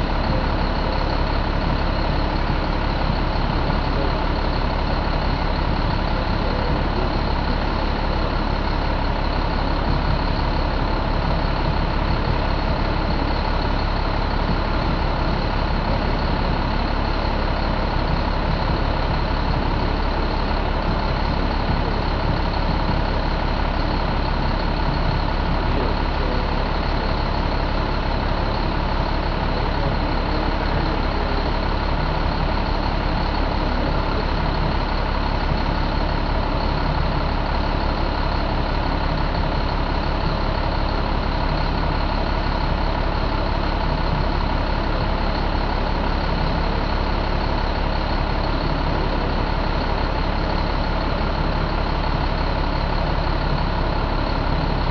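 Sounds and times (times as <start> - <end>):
diesel engine running steadily: 0.0 - 54.9.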